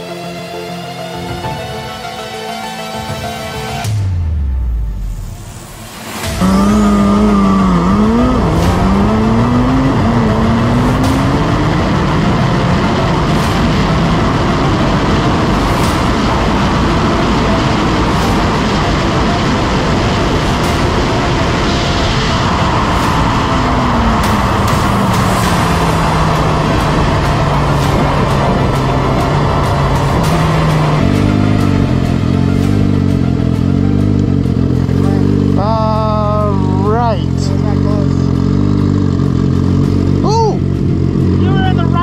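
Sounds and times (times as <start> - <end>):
motorcycle riding noise rush: 2.9 - 42.0
motorcycle engine idling: 23.8 - 42.0.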